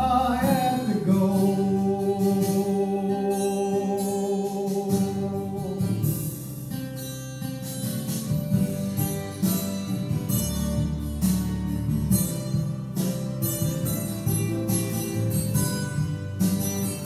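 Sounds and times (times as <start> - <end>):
folk-rock backing track: 0.0 - 17.0
strummed acoustic guitar: 0.0 - 17.0.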